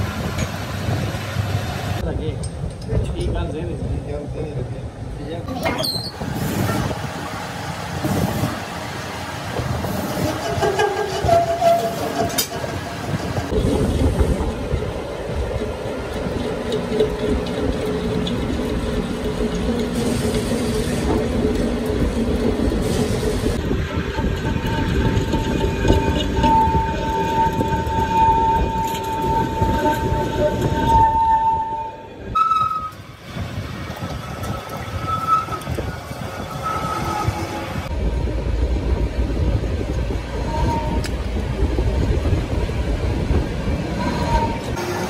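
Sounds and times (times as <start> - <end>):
thin ringing squeal: 5.6 - 6.2, 10.1 - 12.5, 34.3 - 37.8.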